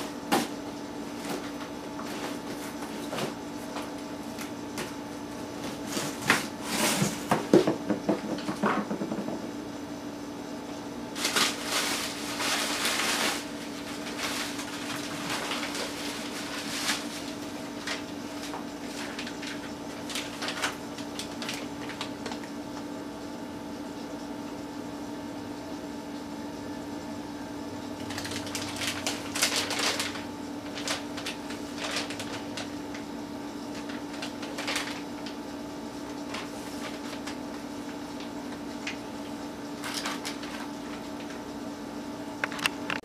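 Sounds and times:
packaging rustling and clatter: 0:11.2 - 0:22.5, 0:28.0 - 0:33.0, 0:33.7 - 0:35.4, 0:36.0 - 0:39.0, 0:39.8 - 0:41.4.

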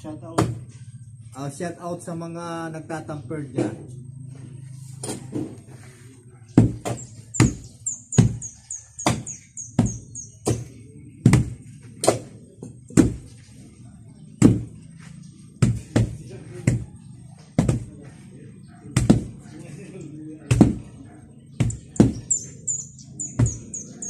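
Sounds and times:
hand tampers pounding earth floor: 0:06.6 - 0:12.2, 0:19.0 - 0:19.4, 0:21.6 - 0:22.5.

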